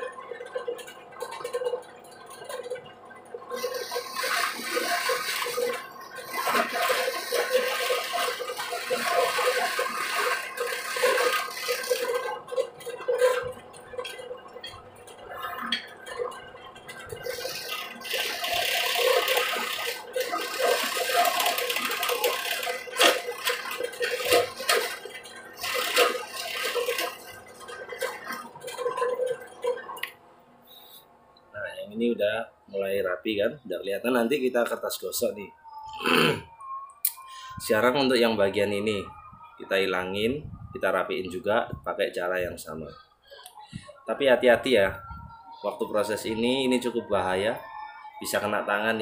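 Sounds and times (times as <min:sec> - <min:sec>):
drill press motor hum: 0:00.0 - 0:30.1.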